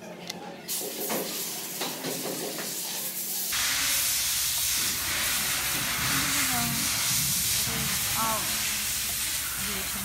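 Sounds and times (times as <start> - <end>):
loud steady hiss: 0.7 - 10.0.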